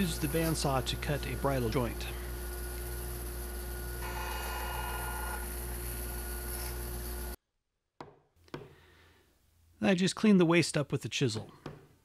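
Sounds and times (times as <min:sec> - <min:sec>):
bandsaw blade cutting wood: 0:00.0 - 0:03.0, 0:04.0 - 0:07.2
bandsaw motor humming: 0:00.0 - 0:07.4
chisel tapping: 0:08.0 - 0:08.8, 0:11.6 - 0:11.9.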